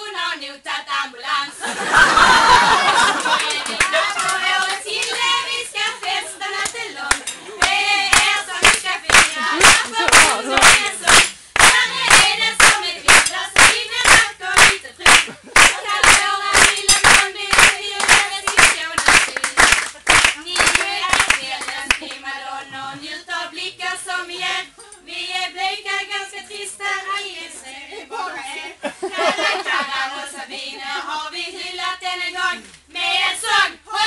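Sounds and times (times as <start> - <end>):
women singing together: 0.0 - 34.0
audience clapping in rhythm: 2.4 - 22.3.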